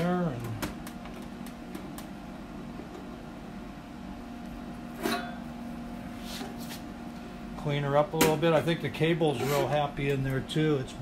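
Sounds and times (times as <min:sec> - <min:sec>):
electrical hum: 0:00.0 - 0:11.0
short scuffing noise: 0:06.1 - 0:06.9.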